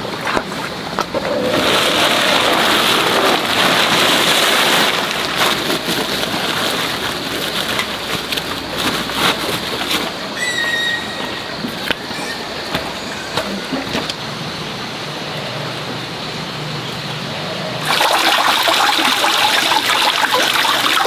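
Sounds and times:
plastic tarpaulin rustling: 0.3 - 10.3.

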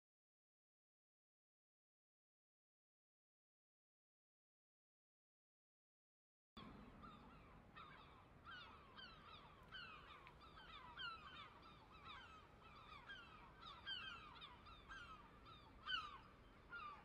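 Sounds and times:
flock of birds calling: 7.0 - 17.0.

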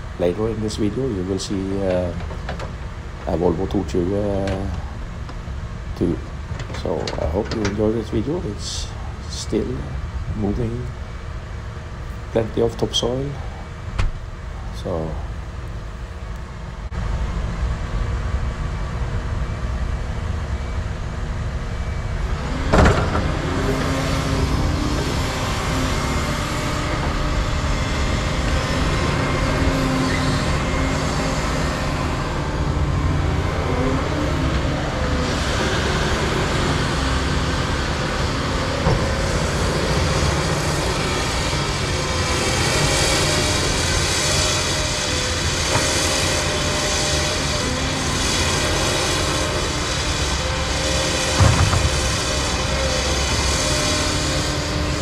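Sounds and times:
excavator diesel engines running: 0.0 - 55.0
hiss: 38.9 - 55.0.

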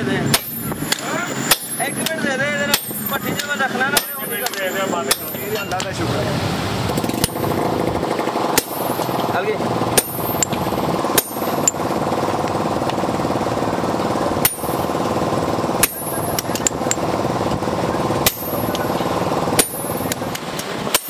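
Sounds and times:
steady machine drone: 0.0 - 21.0
hammer striking steel punch: 0.3 - 5.9, 7.1 - 7.7, 8.5 - 11.8, 14.4 - 15.1, 15.8 - 17.1, 18.2 - 19.0, 19.6 - 21.0.

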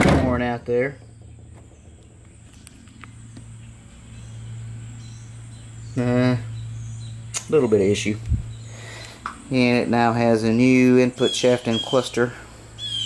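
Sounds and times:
low hum: 0.0 - 11.0
man speaking: 9.5 - 12.4.

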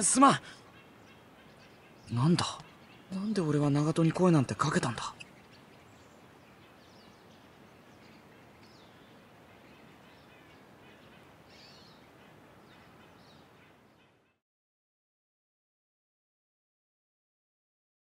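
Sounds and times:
low steady hiss: 0.0 - 14.4.

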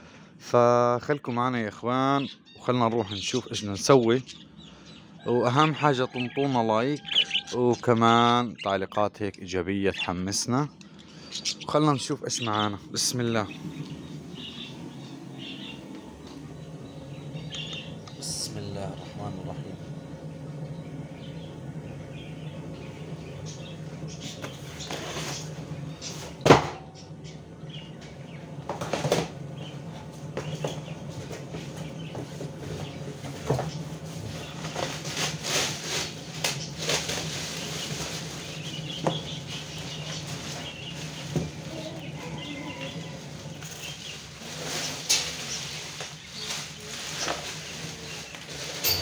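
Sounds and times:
steady low hum: 0.0 - 49.0
plastic bags rustling: 33.7 - 49.0.

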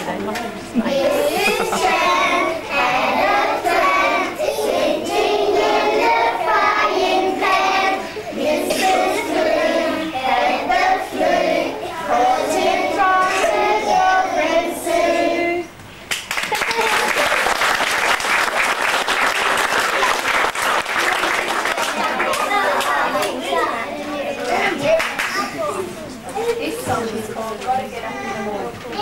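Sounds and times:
children singing together: 0.8 - 15.8.

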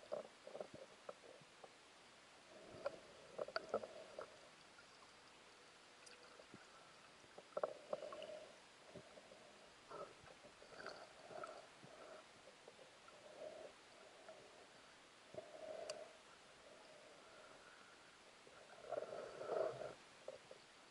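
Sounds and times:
muffled underwater clicks and gurgles: 0.0 - 1.8, 2.5 - 17.8, 18.4 - 20.8
low steady hiss: 0.0 - 20.9.

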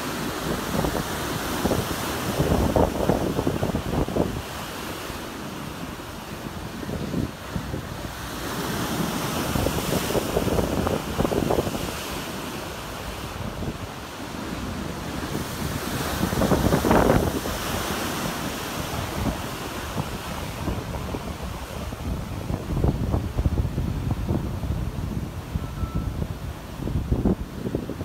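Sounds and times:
ocean surf breaking: 0.0 - 28.0
wind buffeting microphone: 0.0 - 28.0.

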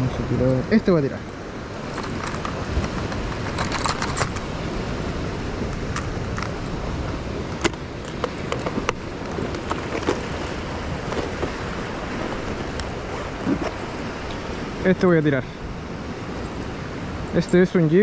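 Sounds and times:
ocean surf: 0.0 - 18.0
wind: 0.0 - 18.0.

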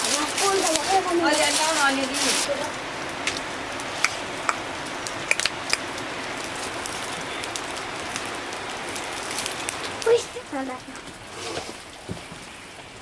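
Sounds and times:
wood fire crackling: 0.0 - 13.0.

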